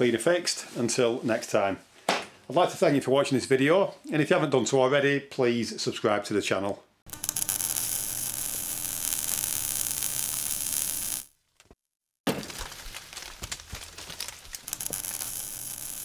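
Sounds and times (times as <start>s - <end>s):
crash with crackling: 12.3s - 16.0s.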